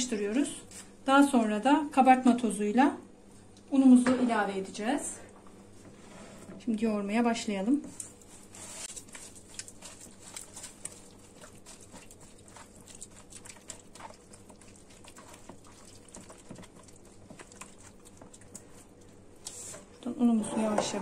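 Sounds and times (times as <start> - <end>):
wet squelches: 8.0 - 20.1.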